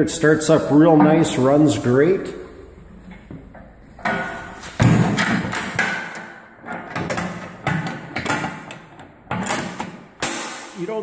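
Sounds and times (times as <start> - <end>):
metal door clanking against frame: 3.0 - 10.8.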